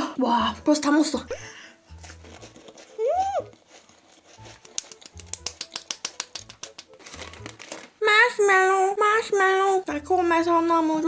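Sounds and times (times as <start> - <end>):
voice squealing: 3.0 - 3.5
hands clapping quickly: 4.4 - 7.5.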